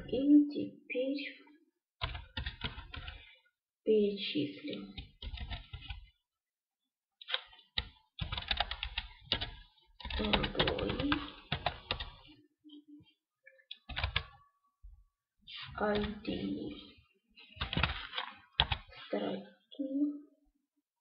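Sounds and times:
computer keyboard typing: 2.0s - 3.3s, 4.9s - 6.1s, 7.2s - 12.3s, 13.7s - 14.4s, 15.8s - 16.6s, 17.6s - 18.9s.

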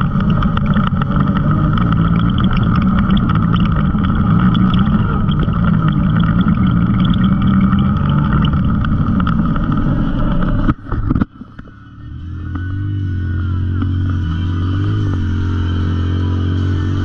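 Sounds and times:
tyres on gravel: 0.0s - 11.8s
utility vehicle engine running: 0.0s - 17.0s.

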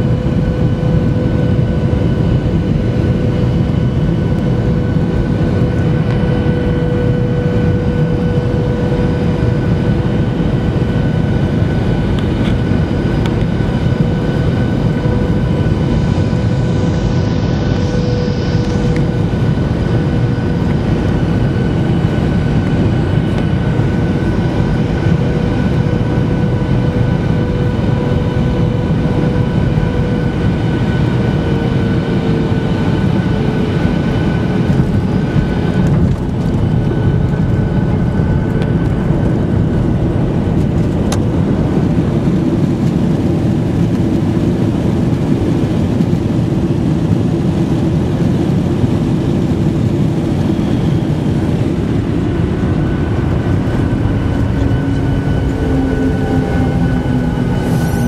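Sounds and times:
jet engine rumble: 0.0s - 58.0s
steady engine tones: 0.0s - 58.0s
rushing air: 50.4s - 58.0s.

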